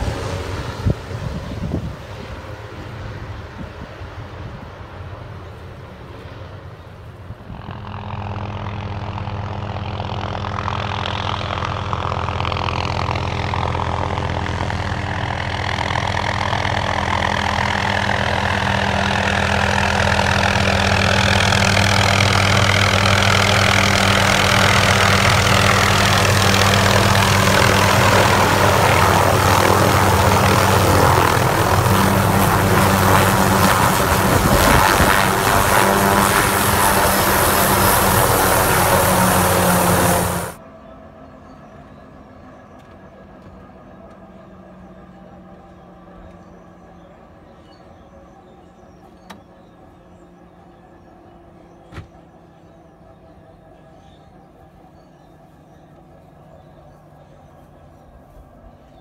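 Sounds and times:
helicopter rotor beat: 0:00.0 - 0:59.0
turbine whine: 0:00.0 - 0:59.0
downwash buffeting microphone: 0:10.9 - 0:40.6.

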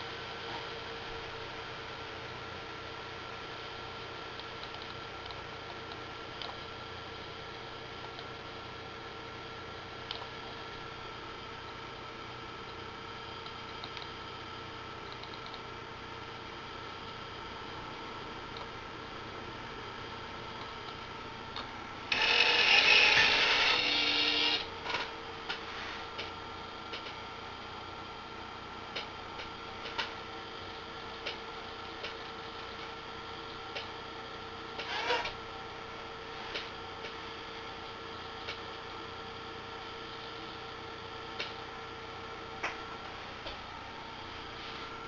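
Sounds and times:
electrical hum: 0:00.0 - 0:45.0
small clicks: 0:13.4 - 0:14.1, 0:15.1 - 0:15.6
geared motors whirring: 0:21.6 - 0:26.2, 0:34.8 - 0:35.4.

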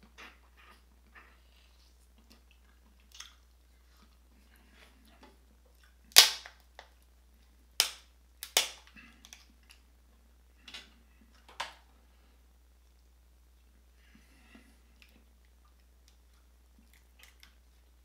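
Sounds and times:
crab shells cracking: 0:07.8 - 0:09.4.

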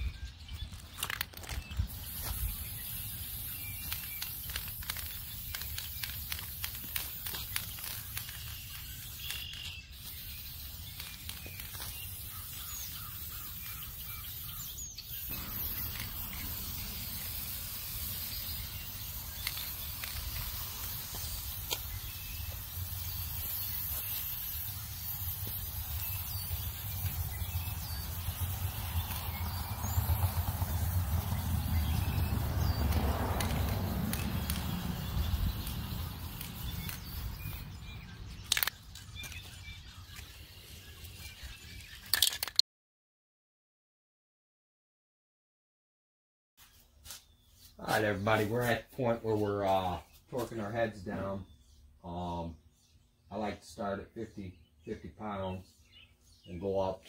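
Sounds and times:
spray paint can hissing: 0:00.8 - 0:42.6
steady low rumble: 0:24.7 - 0:38.4.

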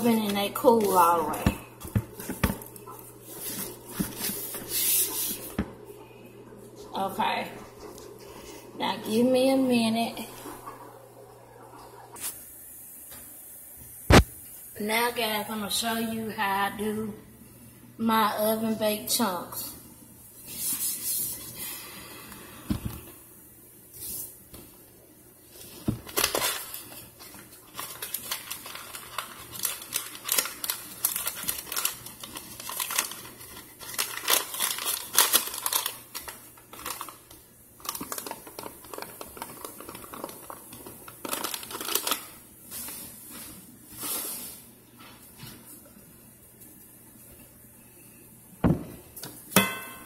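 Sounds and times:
powder pouring crackling and rustling: 0:25.5 - 0:44.7.

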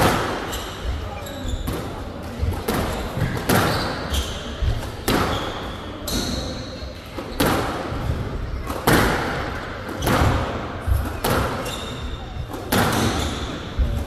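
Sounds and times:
shoe squeaks: 0:00.3 - 0:02.1, 0:02.9 - 0:07.5, 0:10.0 - 0:14.0
squash ball smacks: 0:01.7 - 0:04.0, 0:07.2 - 0:11.6, 0:12.5 - 0:14.0.

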